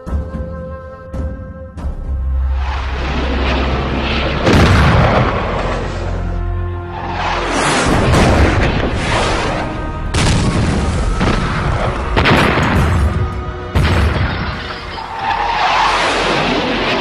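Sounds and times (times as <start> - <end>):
background music: 0.0 - 15.8
heavy explosions: 2.5 - 6.4, 7.0 - 15.0.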